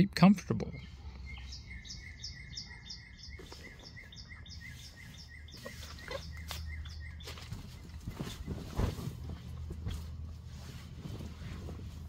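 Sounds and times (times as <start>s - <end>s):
bird chirping: 0.4s - 9.5s
rustling: 4.7s - 12.0s.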